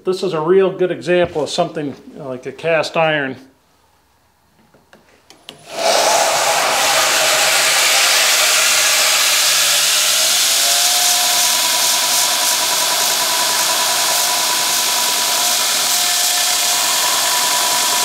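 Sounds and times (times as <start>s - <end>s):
belt grinder grinding metal: 5.6s - 18.0s
grinder motor whine: 5.6s - 18.0s.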